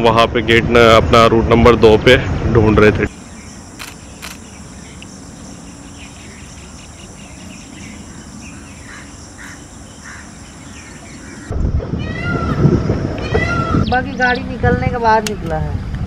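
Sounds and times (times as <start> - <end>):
bird chirps: 3.1 - 11.5
insects droning: 3.1 - 11.5.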